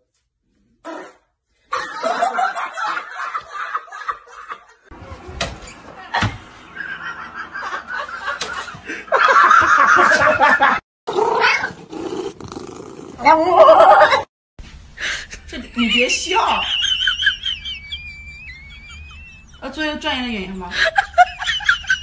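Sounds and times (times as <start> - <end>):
man laughing: 15.2 - 19.6.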